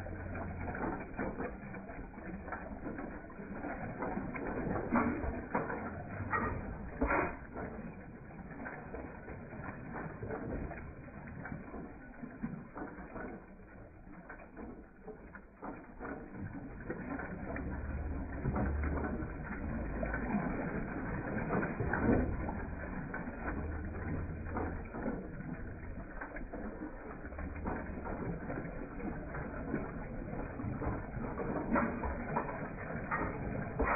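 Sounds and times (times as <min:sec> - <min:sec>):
pump jack mechanical clatter: 0:00.0 - 0:33.9
water pouring from spout: 0:00.0 - 0:33.9.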